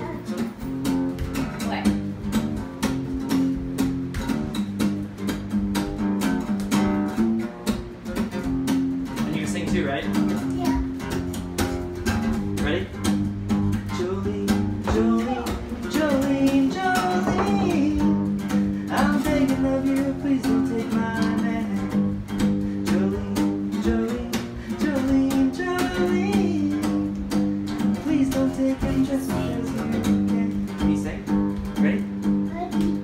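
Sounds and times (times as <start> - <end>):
acoustic guitar strumming: 0.0 - 33.0.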